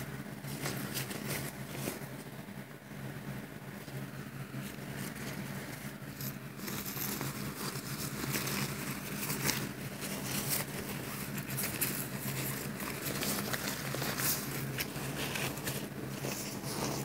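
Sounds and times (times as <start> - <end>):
steady low hum: 0.0 - 17.0
nylon fabric rustling: 3.8 - 17.0.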